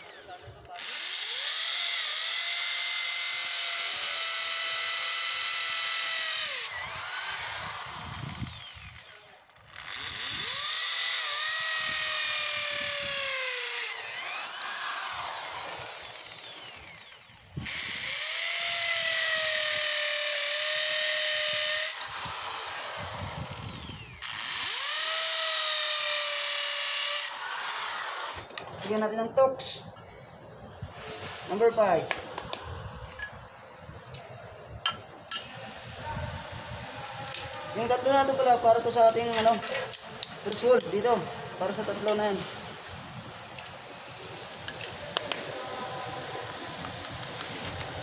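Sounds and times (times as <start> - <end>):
electric drill boring into concrete: 0.0 - 28.5, 34.8 - 41.1, 42.9 - 48.0.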